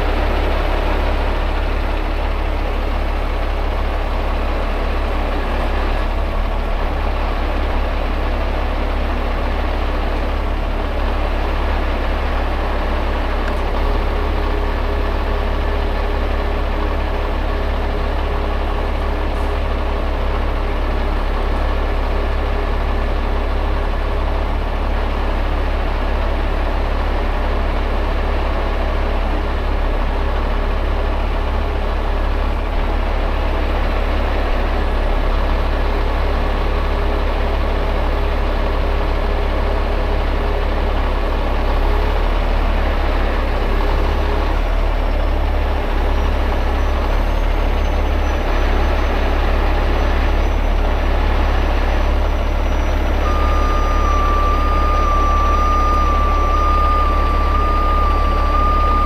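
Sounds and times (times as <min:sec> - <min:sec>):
diesel engine running: 0:00.0 - 0:59.0
high-pitched warning beeper: 0:52.7 - 0:59.0.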